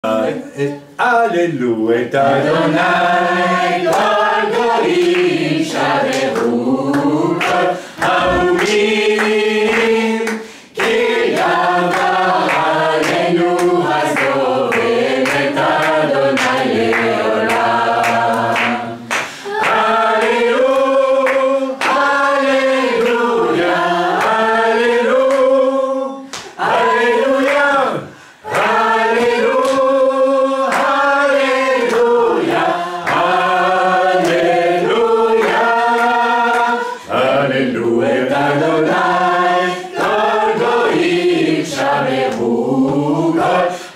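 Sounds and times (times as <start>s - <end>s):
group singing in chorus: 2.2s - 43.9s.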